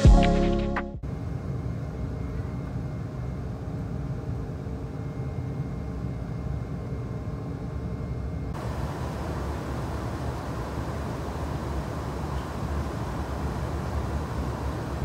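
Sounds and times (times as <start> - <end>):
airliner engine and airflow rumble: 1.0 - 15.0
faint steady tones: 1.1 - 15.0
cabin rushing hiss: 8.6 - 15.0.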